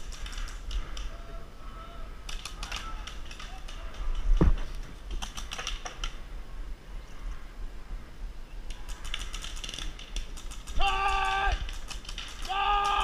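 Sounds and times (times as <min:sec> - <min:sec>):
handling clicks and rattles: 0:02.3 - 0:06.2, 0:08.7 - 0:13.0.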